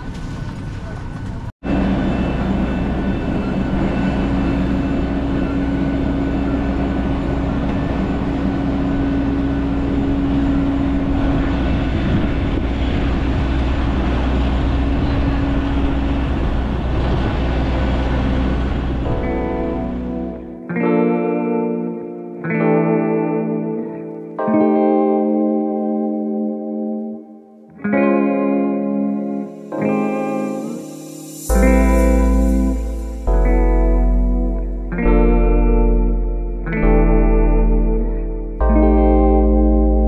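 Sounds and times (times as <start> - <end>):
low hum: 0.0 - 20.8, 29.2 - 40.0
rushing background noise: 0.0 - 20.8, 29.0 - 40.0
steady whine: 1.6 - 25.6, 28.0 - 40.0.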